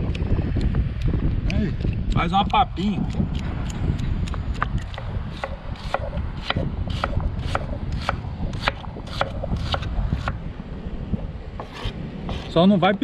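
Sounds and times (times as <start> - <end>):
knife chopping on wooden board: 4.3 - 10.4.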